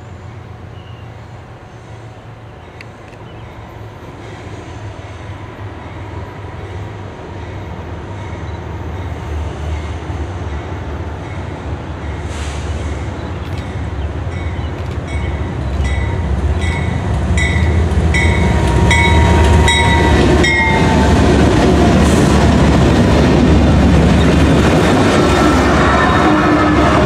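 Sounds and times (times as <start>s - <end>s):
diesel locomotive engines rumbling: 0.0s - 27.0s
train wheels clacking on rails: 9.7s - 27.0s
locomotive bell ringing: 14.3s - 21.2s.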